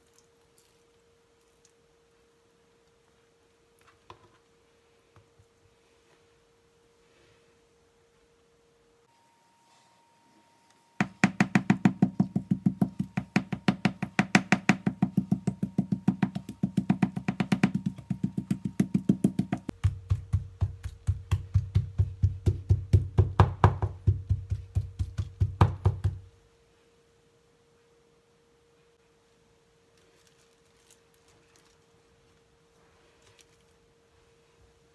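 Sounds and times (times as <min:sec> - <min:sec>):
fast percussive knocking beat: 0:11.0 - 0:26.2.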